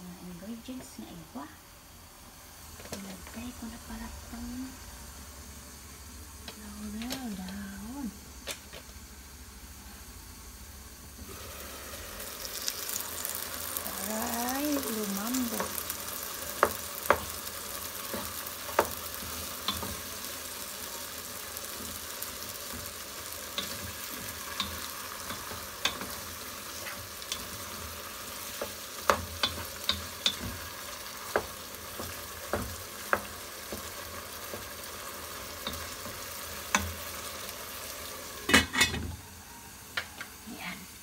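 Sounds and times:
curry sizzling in a pot: 0.0s - 41.0s.

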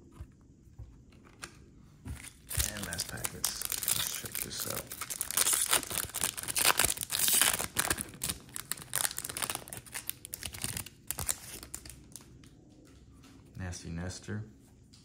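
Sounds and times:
foil wrapper tearing and crinkling: 2.2s - 12.2s.

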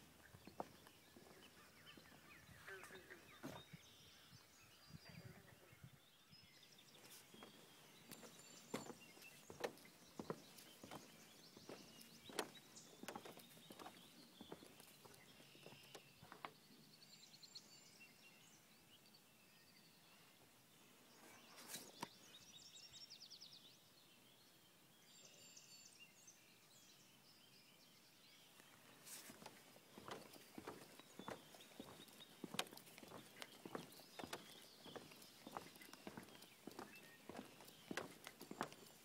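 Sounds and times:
footsteps on wooden planks: 0.0s - 2.3s, 3.4s - 3.7s, 7.0s - 16.6s, 29.0s - 39.0s
songbird trills: 0.0s - 20.3s, 25.2s - 39.0s.

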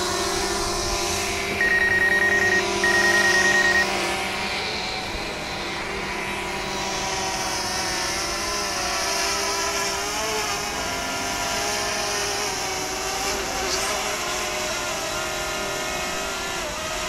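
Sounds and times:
drone propellers whining: 0.0s - 14.9s.

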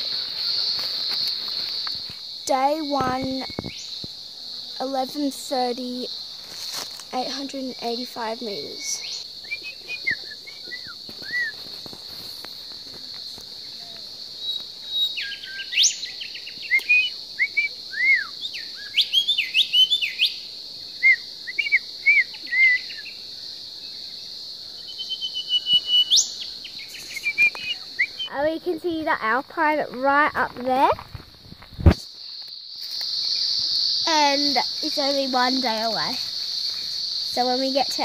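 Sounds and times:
insect drone: 0.0s - 38.0s
rising bird whistles: 9.4s - 11.6s, 14.9s - 20.4s, 21.0s - 23.1s, 24.9s - 28.3s
birds chirping: 12.6s - 23.2s, 23.8s - 28.4s.

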